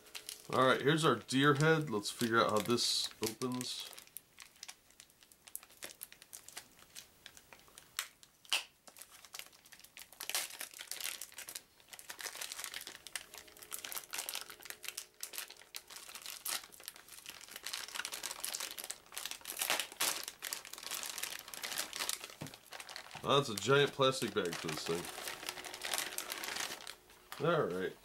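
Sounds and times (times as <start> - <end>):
plastic bags crinkling: 0.0 - 28.0
sharp plastic crack: 5.5 - 9.1, 10.0 - 27.5.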